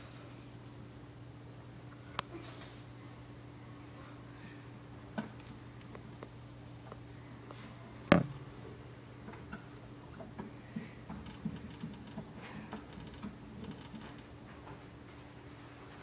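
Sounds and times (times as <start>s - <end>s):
faint steady hum: 0.0s - 16.0s
sharp knock: 8.1s - 8.3s.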